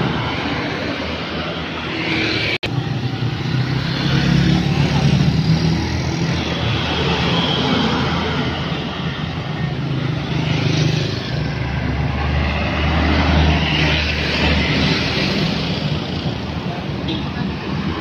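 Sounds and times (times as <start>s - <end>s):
motorbikes passing: 0.0s - 18.0s.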